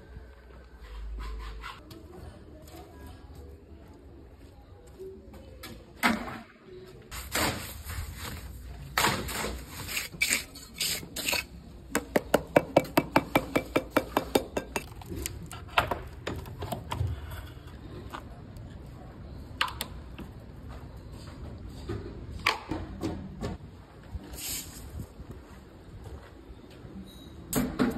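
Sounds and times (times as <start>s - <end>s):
trowel scraping wet concrete: 9.0s - 11.6s.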